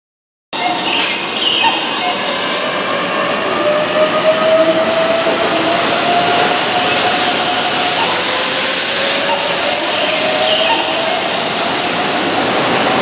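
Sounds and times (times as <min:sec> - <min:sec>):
electric train passing: 0:00.6 - 0:13.0
rolling rail noise with whine: 0:00.6 - 0:13.0.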